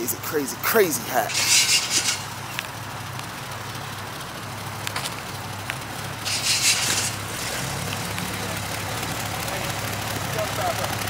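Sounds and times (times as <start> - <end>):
car engine idling: 0.0 - 11.0
short burst of hiss: 1.3 - 2.3, 6.2 - 7.2.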